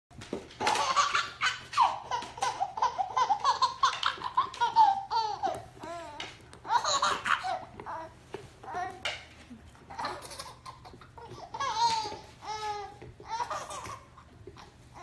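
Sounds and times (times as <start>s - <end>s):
baby laughing and squealing: 0.6s - 7.7s, 9.9s - 14.1s.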